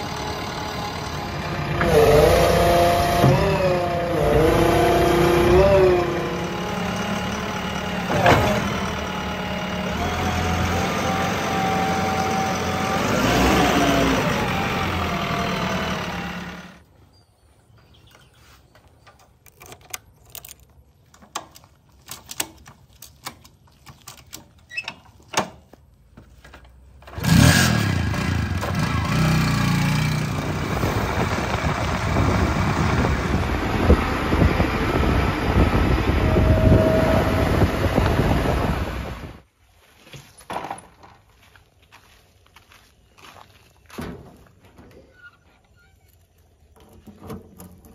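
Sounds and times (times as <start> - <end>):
diesel engine running: 0.0 - 16.8, 27.0 - 39.4
motorcycle kick-starter clicks: 19.0 - 25.7.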